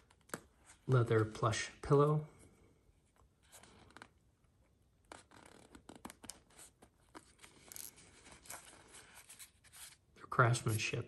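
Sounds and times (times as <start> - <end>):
leather strap rustling: 5.1 - 10.0.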